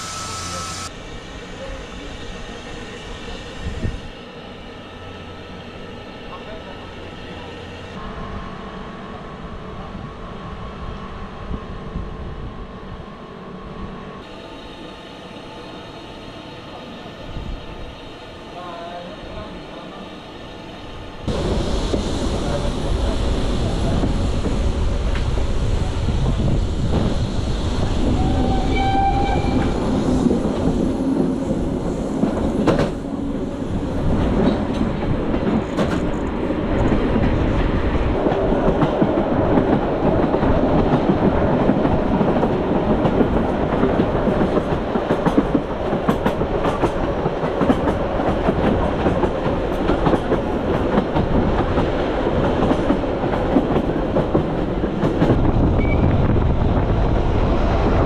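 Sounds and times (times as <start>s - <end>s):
brief high tone: 0.0s - 0.9s
train rumbling along track: 0.0s - 58.0s.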